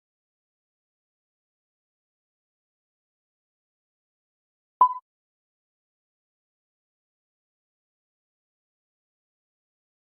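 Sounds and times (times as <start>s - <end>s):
short electronic beep: 4.8s - 5.0s.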